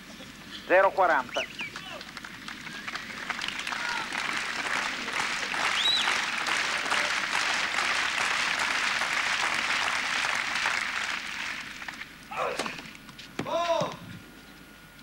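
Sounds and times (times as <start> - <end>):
crowd applauding: 1.3 - 12.1
rising and falling whistle: 5.7 - 6.3.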